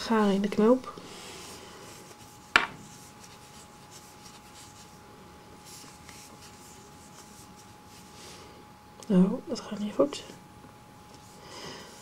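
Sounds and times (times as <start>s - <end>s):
yarn rubbing and rustling: 1.2s - 8.4s.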